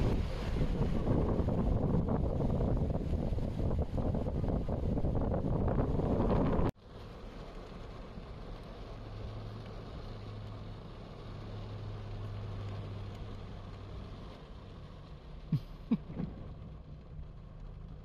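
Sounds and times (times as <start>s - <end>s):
heavy rain: 0.0s - 18.0s
car driving through water: 6.0s - 18.0s.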